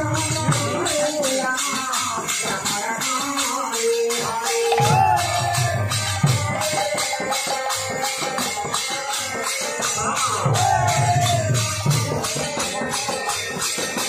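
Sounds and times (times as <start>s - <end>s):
drum strokes: 0.0s - 14.0s
hand cymbals jingling: 0.0s - 14.0s.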